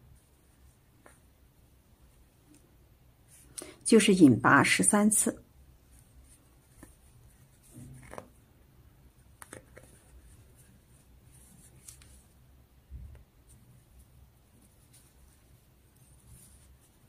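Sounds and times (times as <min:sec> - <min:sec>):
yarn rustling: 0:05.7 - 0:12.5, 0:13.4 - 0:17.0.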